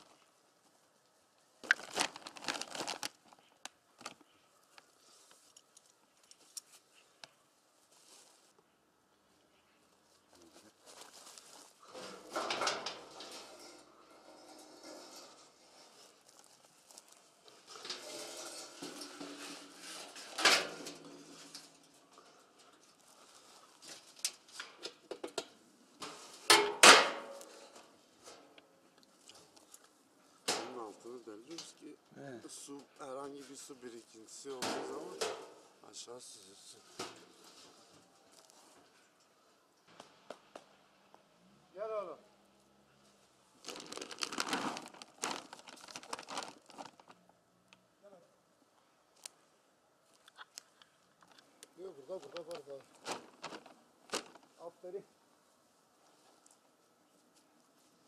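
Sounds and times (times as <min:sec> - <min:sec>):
plastic bags crinkling: 0:01.6 - 0:05.4, 0:43.6 - 0:47.3, 0:51.8 - 0:54.7
faint rustles and ticks: 0:03.2 - 0:08.8.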